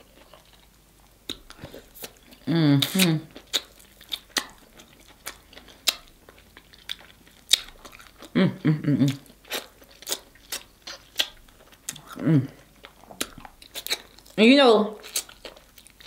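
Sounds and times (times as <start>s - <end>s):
person chewing wet smacks: 0.0s - 8.4s, 9.0s - 14.4s, 15.0s - 16.0s
woman humming: 2.4s - 3.3s, 8.3s - 9.2s, 12.0s - 12.6s.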